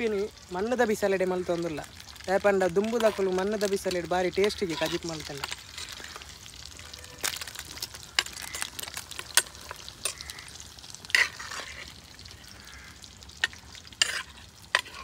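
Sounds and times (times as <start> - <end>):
food sizzling: 0.0 - 15.0
spoon scraping a pan: 3.0 - 12.1, 13.4 - 15.0.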